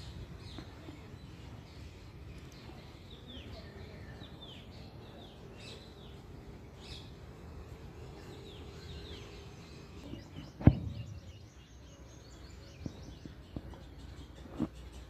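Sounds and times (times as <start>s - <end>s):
small birds chirping: 0.0s - 15.0s
sharp thump: 10.4s - 11.4s.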